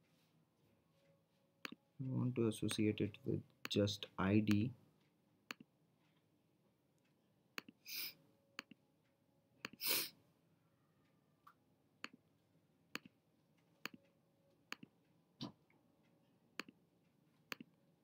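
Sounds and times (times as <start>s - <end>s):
computer mouse clicking: 17.5s - 17.7s.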